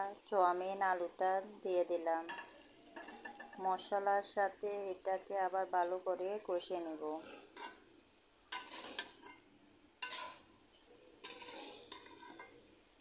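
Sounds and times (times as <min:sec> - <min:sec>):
food sizzling in oil: 0:00.0 - 0:13.0
metal spatula scraping a pan: 0:02.2 - 0:03.6, 0:07.2 - 0:07.9, 0:08.5 - 0:12.8.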